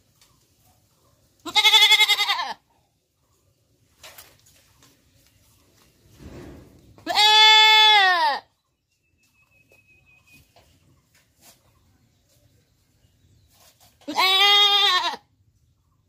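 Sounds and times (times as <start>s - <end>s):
goat bleating: 1.4s - 2.7s, 7.0s - 8.5s, 14.0s - 15.3s.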